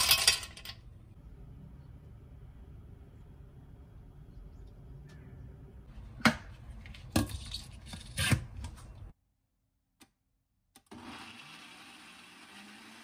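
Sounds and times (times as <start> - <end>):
low room hum: 0.0 - 9.2.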